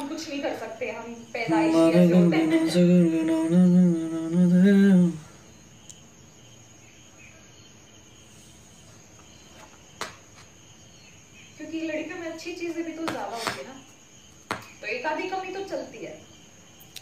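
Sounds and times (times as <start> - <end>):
faint background hiss: 0.0 - 17.0
person humming: 1.5 - 5.4.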